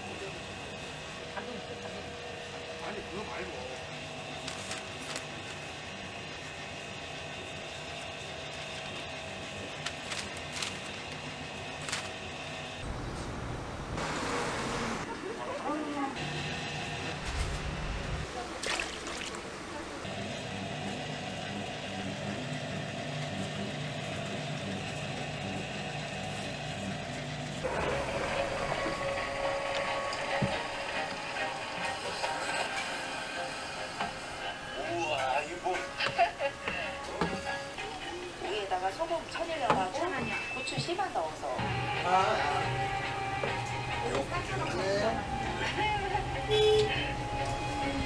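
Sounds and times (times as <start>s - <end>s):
dough mixer motor hum: 20.1s - 32.3s.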